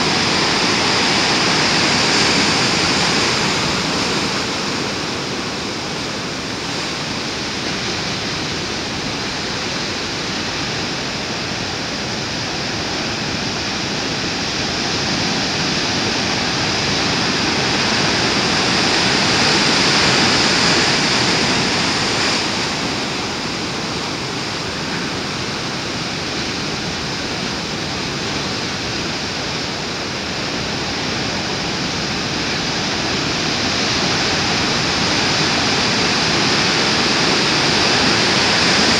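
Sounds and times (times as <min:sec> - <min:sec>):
surf breaking on rocks: 0:33.0 - 0:38.9.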